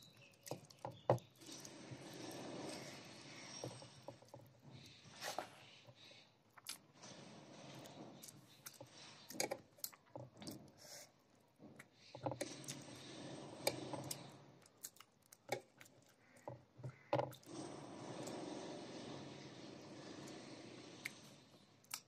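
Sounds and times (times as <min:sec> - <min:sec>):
chewing and wet mouth noises: 0:14.1 - 0:16.5.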